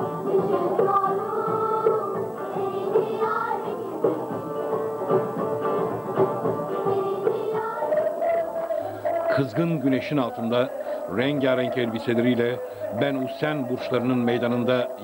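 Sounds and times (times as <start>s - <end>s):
plucked long-necked lutes: 0.0s - 10.5s
choir singing: 0.0s - 15.0s.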